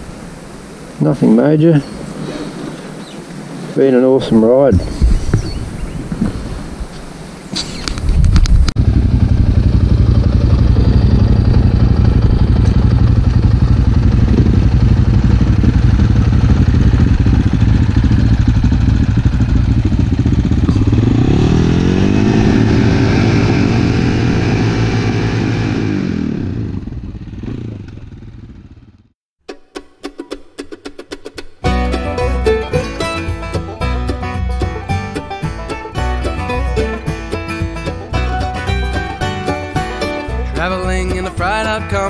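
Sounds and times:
motorcycle engines running: 8.4 - 29.1
motorcycle engine revving: 8.6 - 29.2.

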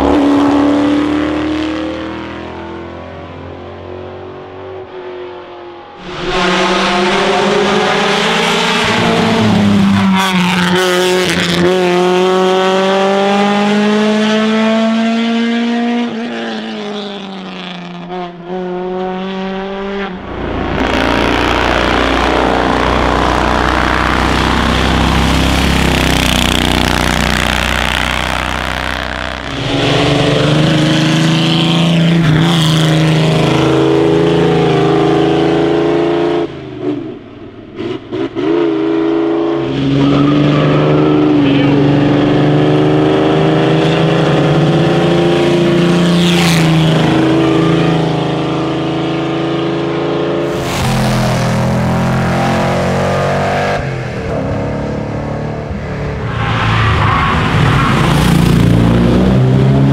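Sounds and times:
racing car engines accelerating: 0.0 - 59.9.

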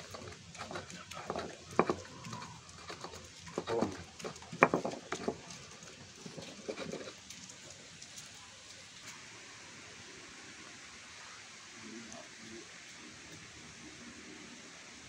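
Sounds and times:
stone pestle pounding in mortar: 4.6 - 5.4.

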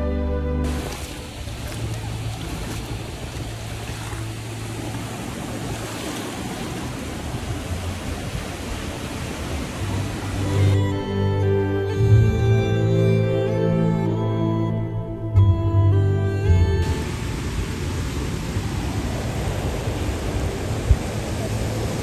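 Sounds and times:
steady rushing noise: 0.7 - 10.8, 16.8 - 22.0.

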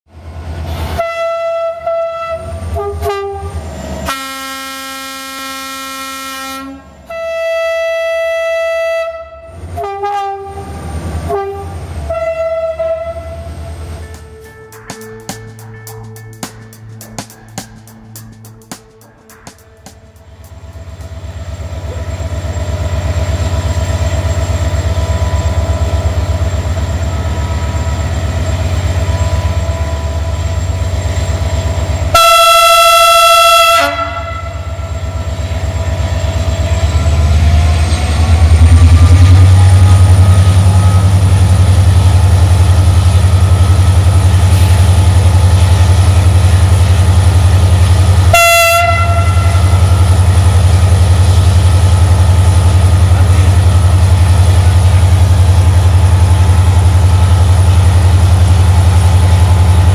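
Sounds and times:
diesel locomotive engine running: 0.1 - 59.9
locomotive horn: 0.9 - 14.7, 32.1 - 35.3, 39.5 - 41.5, 48.2 - 50.4.

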